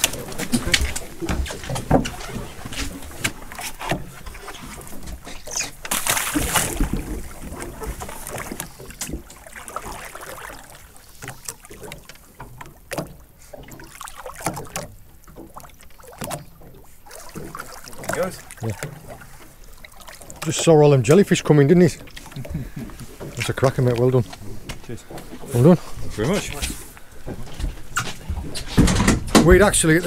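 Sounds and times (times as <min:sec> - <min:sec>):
water splashing at boat side: 0:00.0 - 0:30.0
scattered knocks and clicks: 0:27.3 - 0:29.8.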